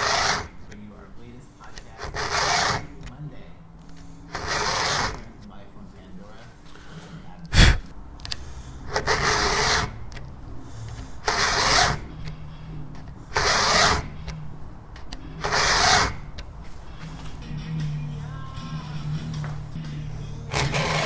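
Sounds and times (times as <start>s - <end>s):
file rasping on saw chain: 0.0s - 0.6s, 1.9s - 3.1s, 4.3s - 5.3s, 8.9s - 10.1s, 10.9s - 12.1s, 13.3s - 14.3s, 15.3s - 16.3s, 20.5s - 21.0s.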